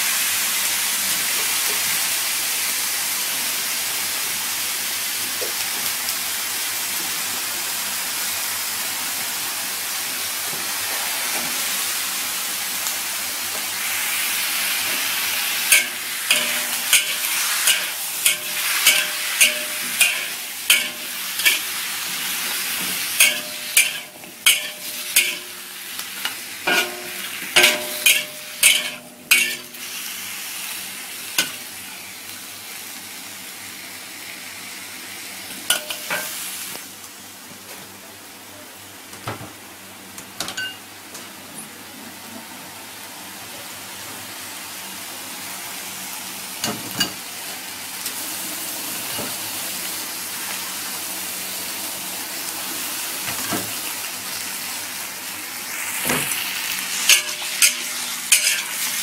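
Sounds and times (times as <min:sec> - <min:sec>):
food sizzling in a wok: 0:00.0 - 0:37.8, 0:39.6 - 0:59.0
metal ladle striking wok: 0:15.7 - 0:21.7, 0:23.0 - 0:29.9, 0:57.1 - 0:59.0.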